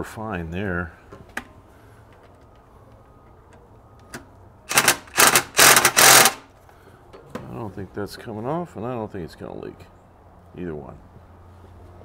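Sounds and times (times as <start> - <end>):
impact driver bursts: 4.7 - 6.5.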